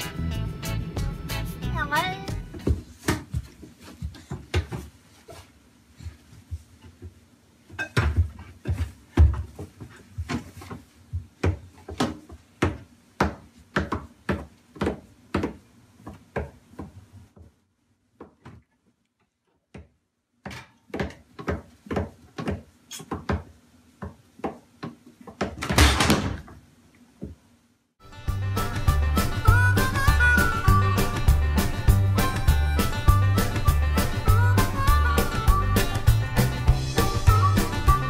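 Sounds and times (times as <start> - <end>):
music: 0.0 - 2.7, 28.0 - 38.0.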